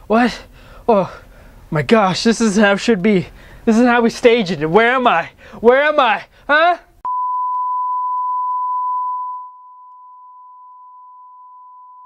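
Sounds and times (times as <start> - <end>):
steady test tone: 7.1 - 12.0.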